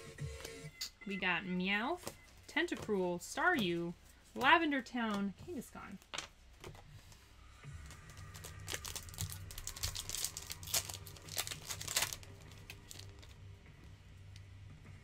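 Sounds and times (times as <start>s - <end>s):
foil wrapper tearing and crinkling: 7.9s - 13.4s.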